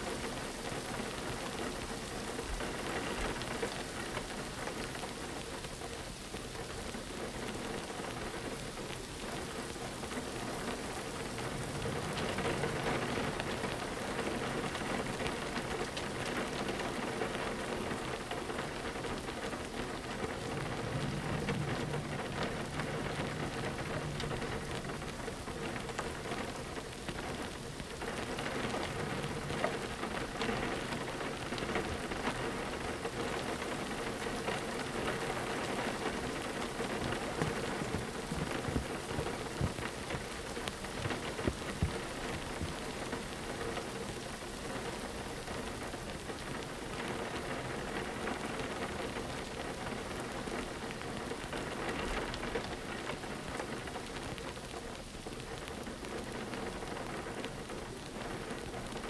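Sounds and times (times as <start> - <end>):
rain on a window pane: 0.0 - 59.0
low rumble: 11.2 - 13.7, 20.2 - 26.4.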